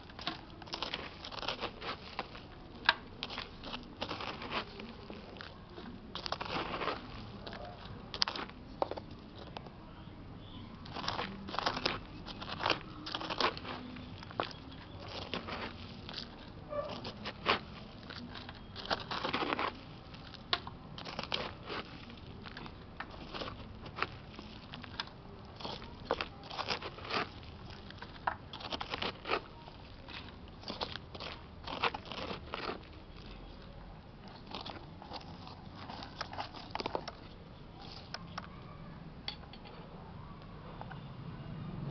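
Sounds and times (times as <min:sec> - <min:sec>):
hand tool scraping through dry soil: 0:03.2 - 0:07.6, 0:10.8 - 0:20.4, 0:21.0 - 0:33.0.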